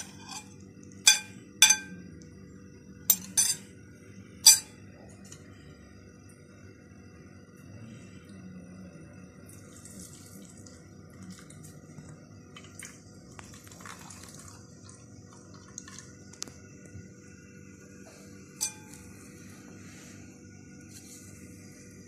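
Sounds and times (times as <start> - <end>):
juice dripping into steel bowl: 9.4 - 17.0.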